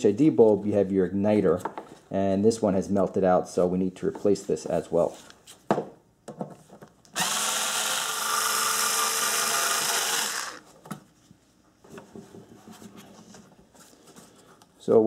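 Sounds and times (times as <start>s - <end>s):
cordless drill whining: 7.2s - 10.6s.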